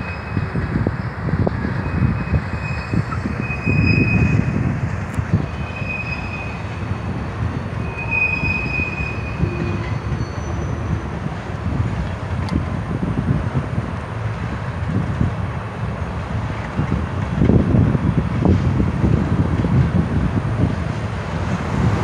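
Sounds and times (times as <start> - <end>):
train wheels squealing: 0.0 - 4.6, 5.3 - 11.1
freight train rumbling past: 0.0 - 22.0.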